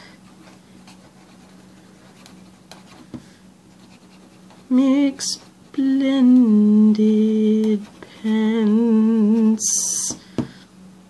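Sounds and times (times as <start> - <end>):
marker scratching on paper: 0.4 - 3.1, 3.7 - 4.7
woman humming: 4.7 - 10.2.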